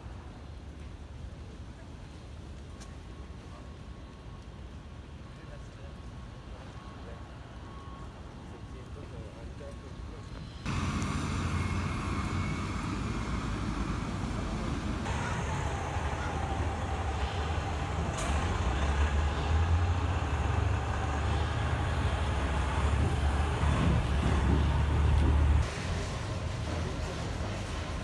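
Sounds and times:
vehicle rumble: 10.4s - 28.0s.

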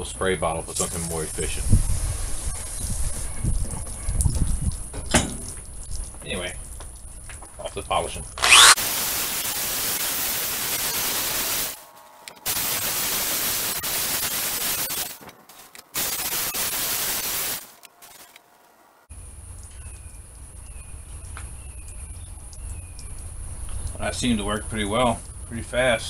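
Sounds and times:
power drill sanding hiss: 8.4s - 11.8s, 12.4s - 15.2s, 16.0s - 17.8s.

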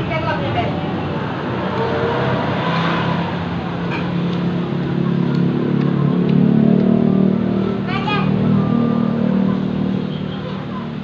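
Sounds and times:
vehicle engine humming: 0.0s - 11.0s.

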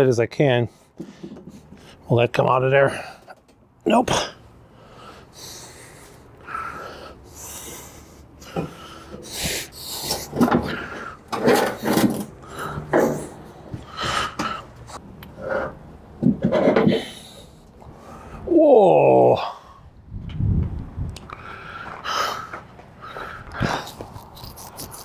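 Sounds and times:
man straining and breathing hard: 2.8s - 3.5s, 4.1s - 20.0s, 21.3s - 25.0s
metal frame scraping and knocking: 10.0s - 13.5s.

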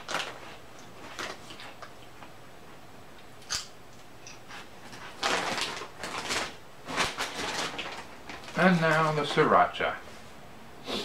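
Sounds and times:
chip bag crinkling: 0.0s - 1.9s, 4.9s - 9.6s.

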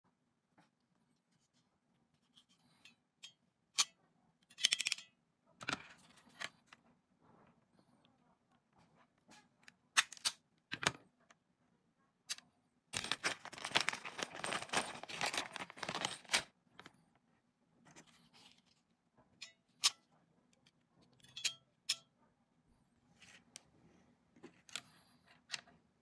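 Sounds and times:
plastic bag crinkling: 13.0s - 16.5s.

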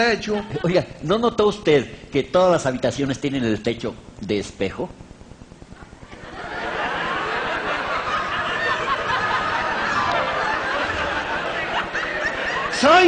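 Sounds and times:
audience laughter: 6.1s - 13.0s.

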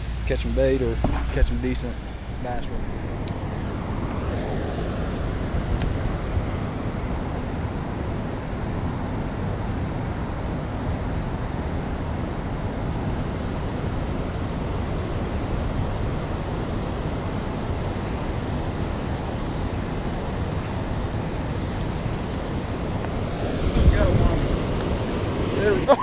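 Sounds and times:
wind: 0.0s - 26.0s
fast-flowing river water: 12.2s - 26.0s.

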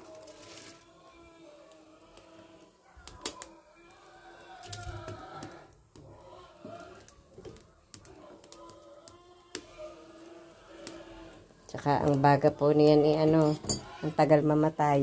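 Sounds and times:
firewood crackling pops: 3.0s - 3.5s, 4.6s - 9.8s.

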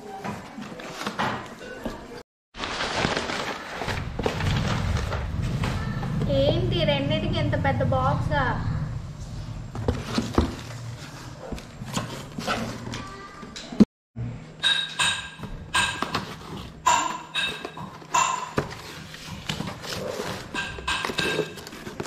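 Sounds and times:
cardboard boxes handled on stone floor: 9.7s - 13.1s, 17.4s - 22.0s.

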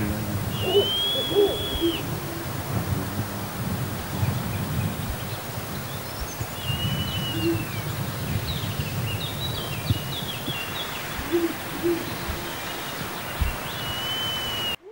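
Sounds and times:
steady low rumble: 0.0s - 14.7s
small birds chirping: 0.0s - 14.9s
owl hooting: 0.1s - 2.9s, 6.5s - 7.8s, 9.3s - 14.9s.

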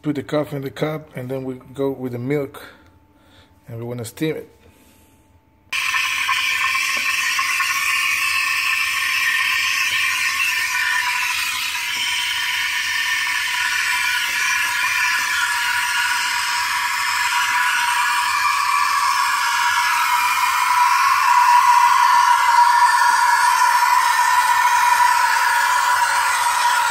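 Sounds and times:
steam wand hissing into milk: 5.8s - 26.9s.

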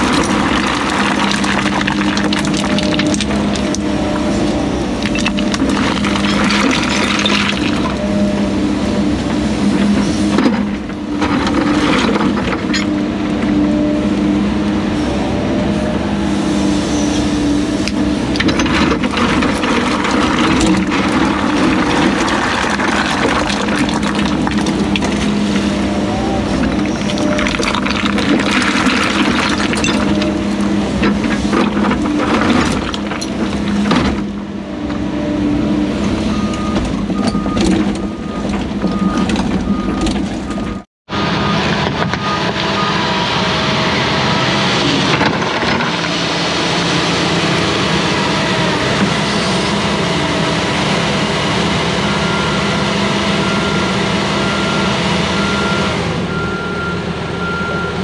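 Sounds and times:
rocks knocking and clattering: 0.0s - 3.9s, 5.0s - 8.0s, 18.4s - 25.7s, 26.6s - 34.3s
excavator diesel engine under load: 0.0s - 58.0s.

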